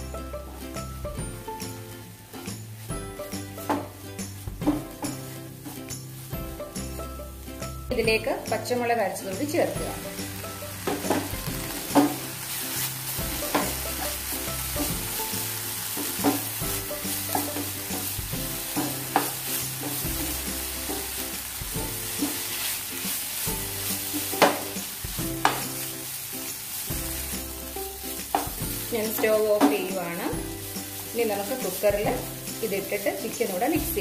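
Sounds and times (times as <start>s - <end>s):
sauce sizzling in oil: 0.0s - 34.0s
spatula scraping frying pan: 10.7s - 34.0s.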